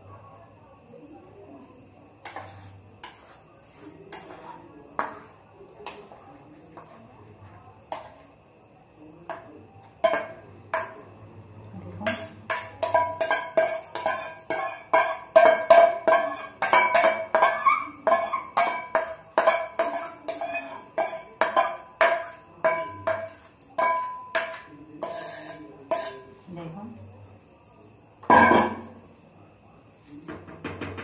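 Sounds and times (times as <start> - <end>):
spoon knocking in metal bowl: 2.2 - 6.2, 7.9 - 8.2, 9.2 - 11.1, 12.0 - 26.4, 28.2 - 29.0.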